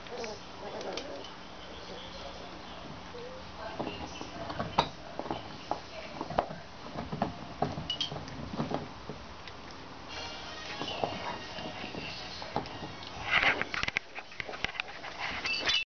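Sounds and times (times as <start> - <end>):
puppies scuffling on blanket: 10.1 - 15.8.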